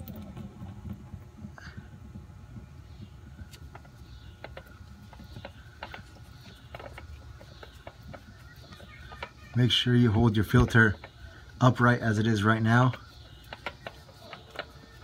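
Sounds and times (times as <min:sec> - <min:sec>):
low steady rumble: 0:00.0 - 0:15.0
oil filter turning clicks: 0:03.5 - 0:09.6, 0:12.4 - 0:15.0.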